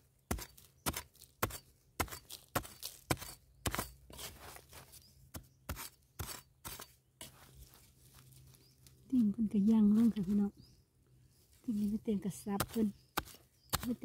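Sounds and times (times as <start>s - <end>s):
metal blade chopping stony soil: 0.0s - 7.5s, 12.3s - 14.0s.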